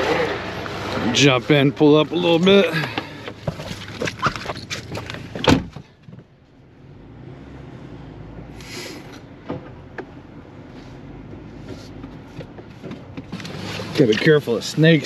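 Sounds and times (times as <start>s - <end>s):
car door shutting: 5.2s - 6.2s.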